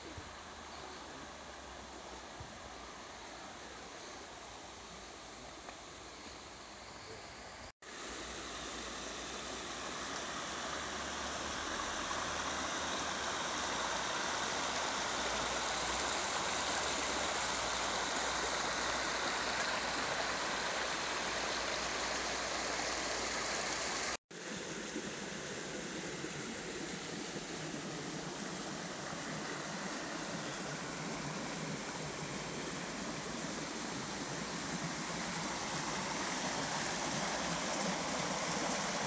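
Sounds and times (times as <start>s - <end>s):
river water rushing over rocks: 7.9s - 39.0s.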